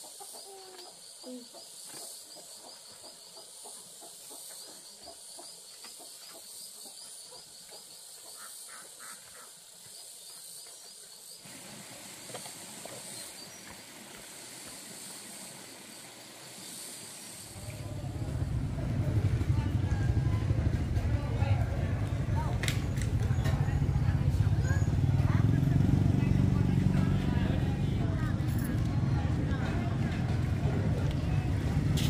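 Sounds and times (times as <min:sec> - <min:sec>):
broad noisy hiss: 0:00.0 - 0:19.2
steady high hiss: 0:08.0 - 0:17.9.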